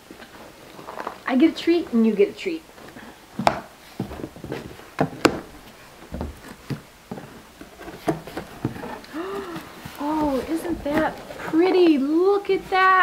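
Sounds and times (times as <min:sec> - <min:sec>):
knife cutting cardboard box: 0:06.4 - 0:13.0.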